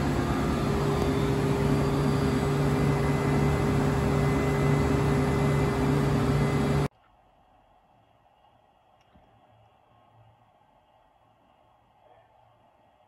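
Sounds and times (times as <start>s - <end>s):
machine tool hum: 0.0s - 6.9s.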